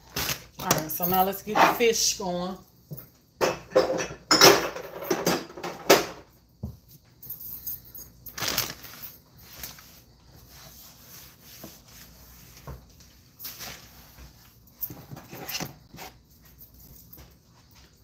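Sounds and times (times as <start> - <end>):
kitchen rustling and clatter: 0.0 - 18.0
small handling noises: 6.6 - 18.0.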